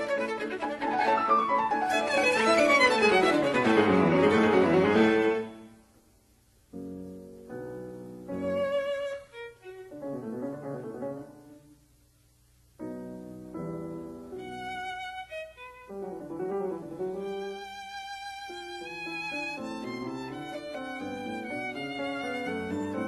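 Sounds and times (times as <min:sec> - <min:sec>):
violin: 0:00.0 - 0:05.7, 0:08.2 - 0:10.6, 0:14.2 - 0:23.0
piano: 0:00.0 - 0:23.0.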